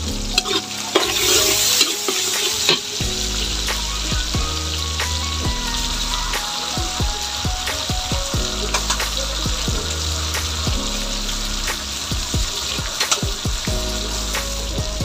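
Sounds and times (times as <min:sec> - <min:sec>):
sharp crackles: 0:00.0 - 0:15.0
vegetables sizzling in hot oil: 0:00.0 - 0:15.0.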